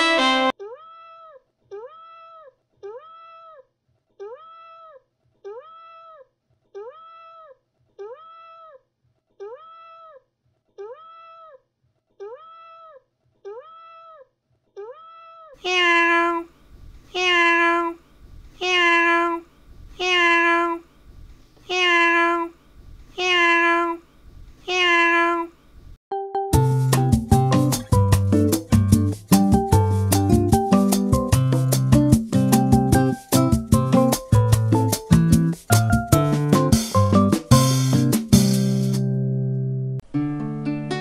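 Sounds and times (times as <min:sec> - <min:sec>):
cat meowing: 0:14.8 - 0:16.5, 0:17.1 - 0:18.0, 0:18.6 - 0:20.8, 0:21.6 - 0:24.0, 0:24.6 - 0:25.6.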